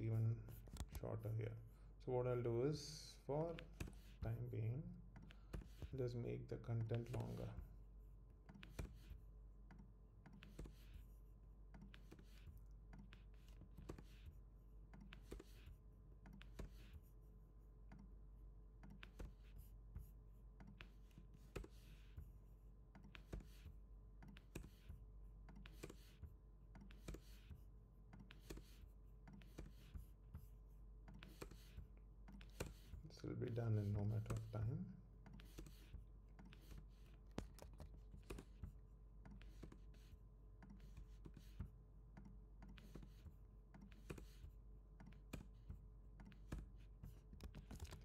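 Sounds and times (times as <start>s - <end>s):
computer keyboard clicks: 35.3s - 38.6s, 46.2s - 48.0s.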